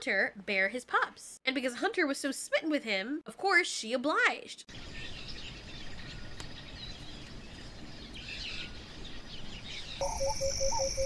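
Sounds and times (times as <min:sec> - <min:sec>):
small birds chirping: 0:04.7 - 0:11.0
insect trilling: 0:10.0 - 0:11.0.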